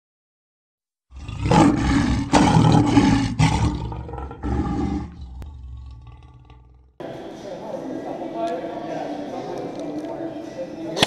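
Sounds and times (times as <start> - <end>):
lion roaring: 1.1 - 6.9.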